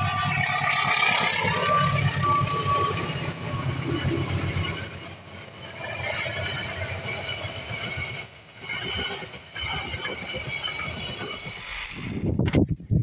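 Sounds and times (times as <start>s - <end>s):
train wheels clattering on rails: 0.0s - 11.7s.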